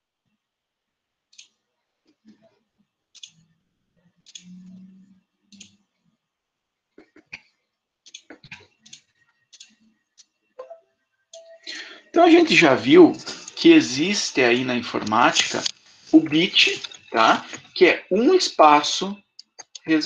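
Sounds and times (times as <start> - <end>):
mouse and keyboard clicks: 3.2 - 3.4, 4.3 - 4.5, 8.1 - 10.3, 19.4 - 19.9.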